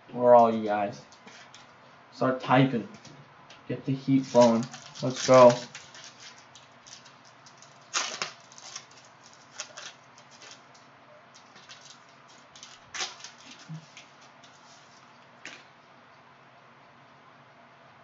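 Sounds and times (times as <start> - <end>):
plastic wrapper crinkling and tearing: 4.2 - 14.6.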